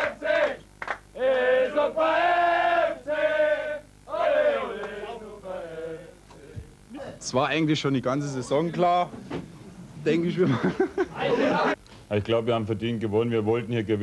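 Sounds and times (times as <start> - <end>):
group chanting together: 0.0 - 0.6, 1.2 - 6.6.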